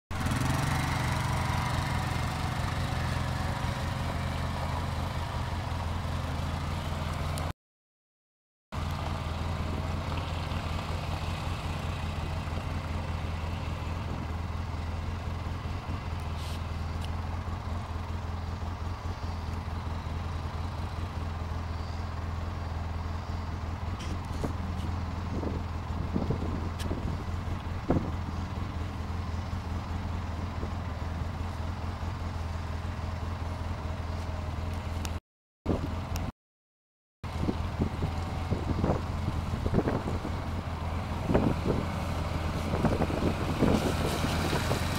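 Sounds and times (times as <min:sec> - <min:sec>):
atv engine droning: 0:00.1 - 0:07.5, 0:08.8 - 0:36.3, 0:37.2 - 0:44.9.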